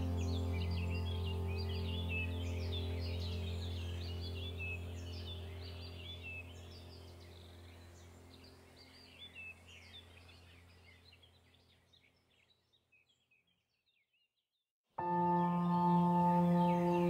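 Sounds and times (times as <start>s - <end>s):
low drone note: 0.0s - 8.1s, 15.0s - 17.0s
birds chirping: 0.0s - 14.3s, 15.0s - 17.0s.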